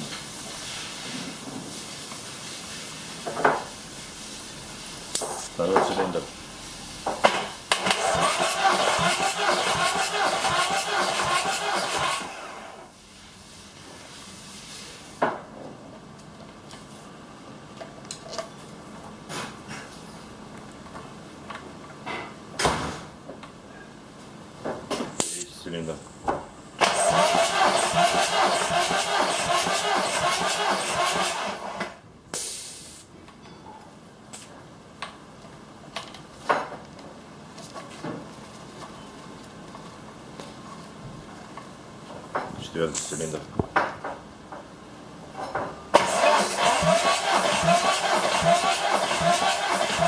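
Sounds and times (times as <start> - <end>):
pressure release hiss: 25.2 - 25.5, 32.3 - 33.1.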